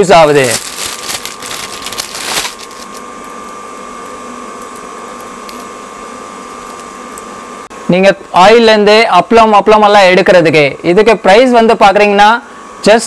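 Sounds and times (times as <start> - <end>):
mechanical hum with high whine: 0.0 - 13.0
rustling: 0.3 - 3.4.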